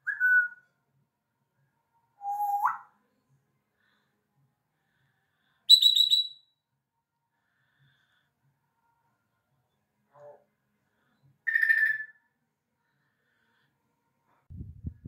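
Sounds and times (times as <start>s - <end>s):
parrot whistling: 0.0s - 0.6s, 2.2s - 2.9s, 5.7s - 6.4s, 11.5s - 12.2s.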